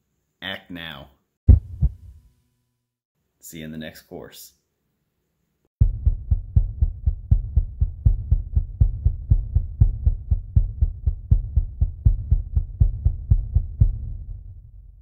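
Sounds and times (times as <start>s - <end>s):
low thumping pulse: 1.5s - 2.2s, 5.8s - 15.0s.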